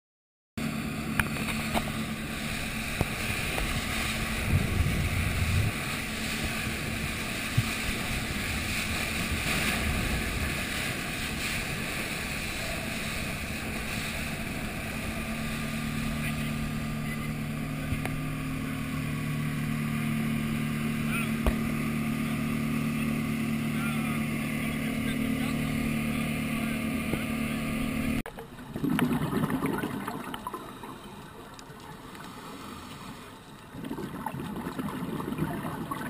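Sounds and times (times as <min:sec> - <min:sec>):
wind and water rushing: 0:00.6 - 0:26.6
outboard motor running: 0:00.6 - 0:36.0.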